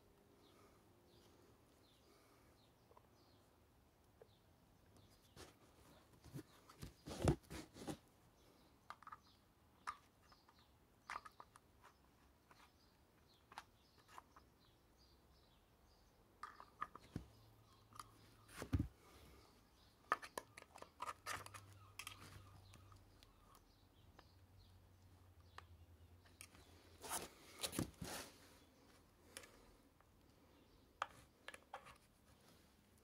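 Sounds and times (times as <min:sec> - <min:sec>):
faint bird chirps: 0:08.4 - 0:27.6.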